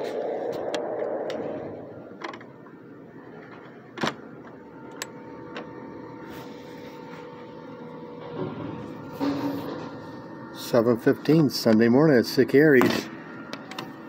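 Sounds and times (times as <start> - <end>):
faint steady whine: 0.0 - 14.0.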